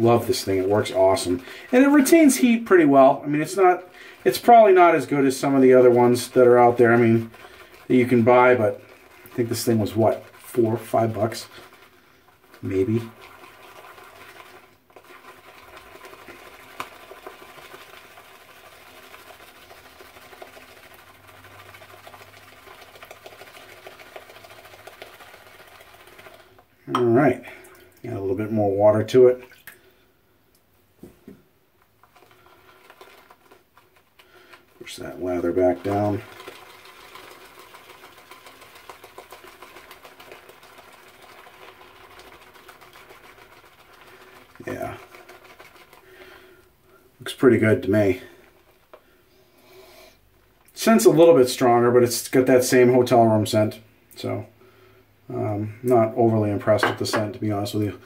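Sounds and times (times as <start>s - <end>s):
shaving brush swishing in bowl: 0.0s - 26.6s, 32.0s - 46.3s.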